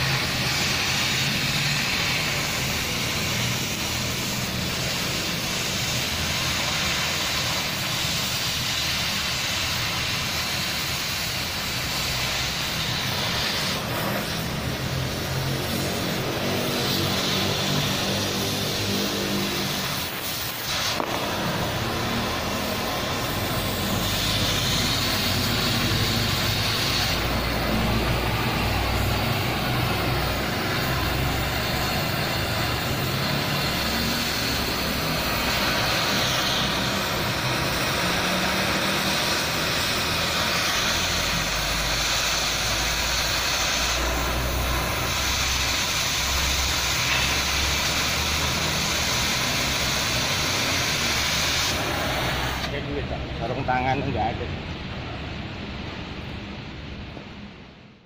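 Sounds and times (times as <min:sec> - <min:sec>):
cutting torch hissing: 0:00.0 - 0:56.9
low machine drone: 0:21.0 - 0:48.2.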